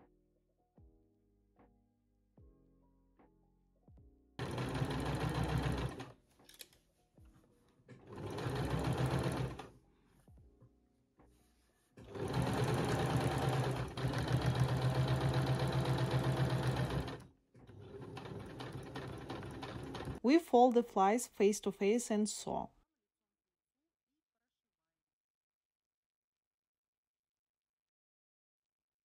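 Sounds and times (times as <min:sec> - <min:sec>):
electric sewing machine stitching: 0:04.4 - 0:06.1, 0:08.0 - 0:09.7, 0:12.0 - 0:20.2.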